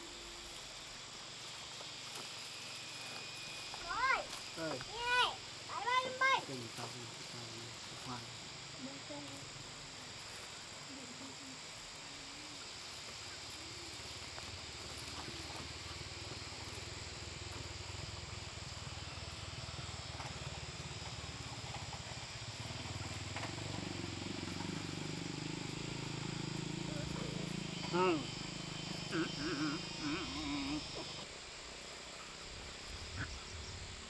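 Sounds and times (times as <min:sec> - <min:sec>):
crickets chirping: 0:00.0 - 0:34.0.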